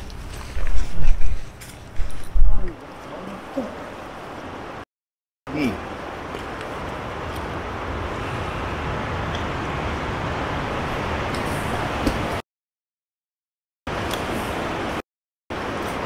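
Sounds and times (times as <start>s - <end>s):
river rushing: 2.8s - 4.8s, 5.5s - 12.4s, 13.9s - 16.0s.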